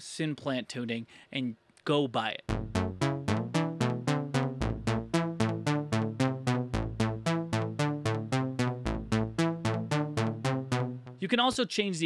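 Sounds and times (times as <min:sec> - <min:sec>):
low synth bass note: 0:02.5 - 0:11.2
synth plucks: 0:02.5 - 0:11.2.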